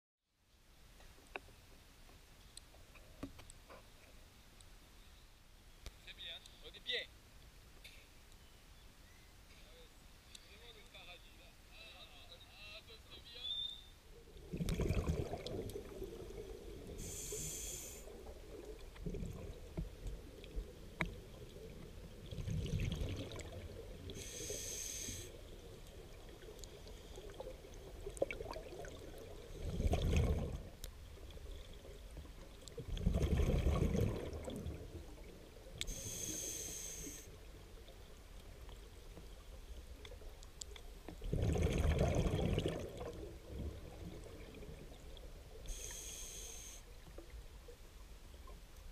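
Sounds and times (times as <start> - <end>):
exhaled bubbles rumbling: 14.2 - 17.2, 18.1 - 24.2, 25.4 - 35.8, 41.1 - 45.5
hissing regulator inhales: 17.0 - 18.1, 24.2 - 25.4, 35.9 - 37.3, 45.7 - 46.9.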